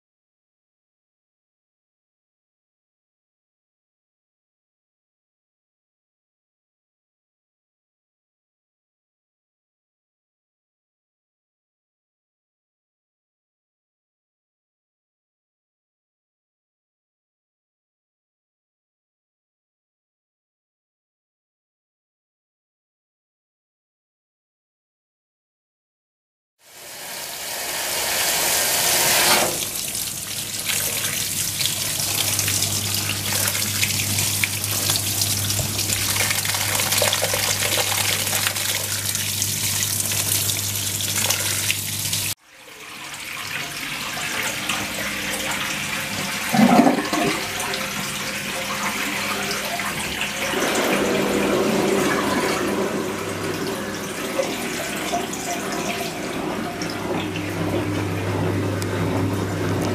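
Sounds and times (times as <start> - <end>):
washing machine humming: 26.6 - 59.9
water spraying onto wet clothes: 27.6 - 42.4.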